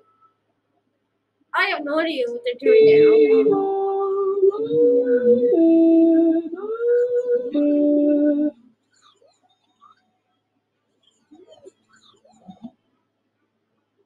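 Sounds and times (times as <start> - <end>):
person singing sliding notes: 2.5 - 8.6.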